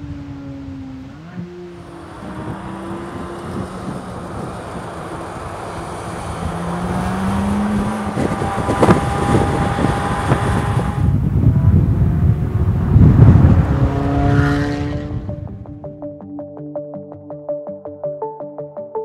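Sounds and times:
sports car engine on track: 0.0 - 15.8
sharp exhaust cracks: 0.7 - 15.8.

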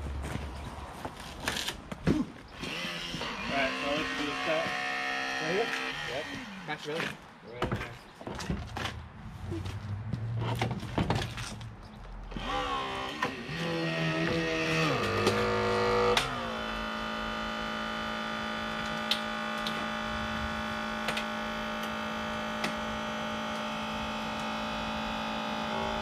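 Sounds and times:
motor humming: 12.4 - 26.0.

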